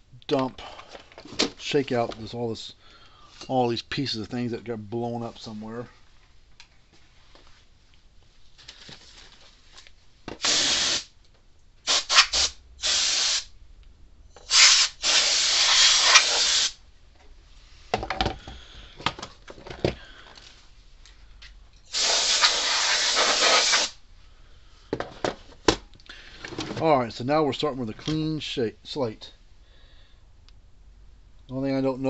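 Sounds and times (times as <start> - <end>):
aerosol can spraying: 10.4 - 11.1, 11.9 - 13.5, 14.5 - 16.8, 21.9 - 24.0.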